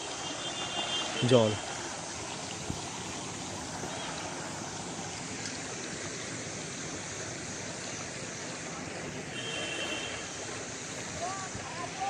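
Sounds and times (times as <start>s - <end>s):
river water flowing over stones: 0.0s - 12.0s.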